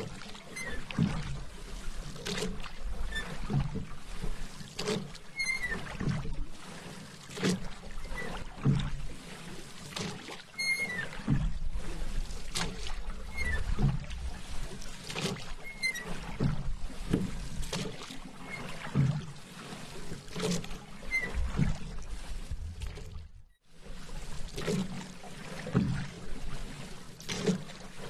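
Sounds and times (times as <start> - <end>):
paddle splashing in water: 0.0 - 28.0
water lapping: 0.0 - 28.0
faint short squeak: 0.5 - 0.9, 3.1 - 3.4, 5.3 - 5.9, 10.5 - 11.2, 13.3 - 13.8, 15.6 - 16.1, 21.0 - 21.5.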